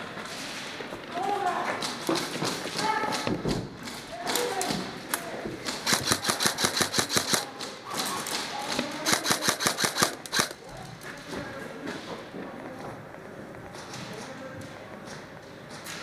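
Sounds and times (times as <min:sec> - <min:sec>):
airsoft rifle bursts: 0:05.7 - 0:07.6, 0:09.0 - 0:10.6.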